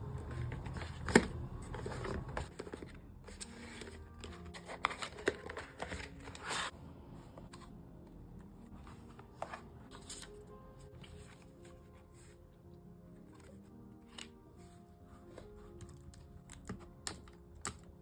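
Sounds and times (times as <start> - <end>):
cardboard scraping and rustling: 0.2 - 6.7.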